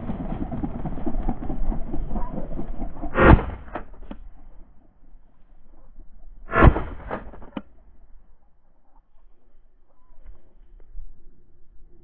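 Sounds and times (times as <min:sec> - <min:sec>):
shotgun shots: 0:03.2 - 0:03.9, 0:06.5 - 0:07.5
rushing rustling noise: 0:06.5 - 0:07.5.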